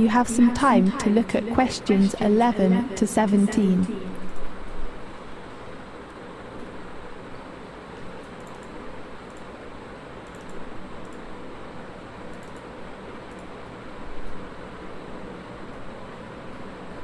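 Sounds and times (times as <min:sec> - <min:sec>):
mouse clicks: 0:10.2 - 0:11.2.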